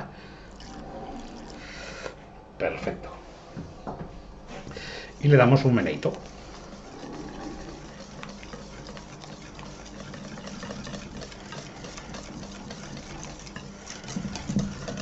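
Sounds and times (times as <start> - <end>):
whisk beating in metal bowl: 4.8 - 15.0.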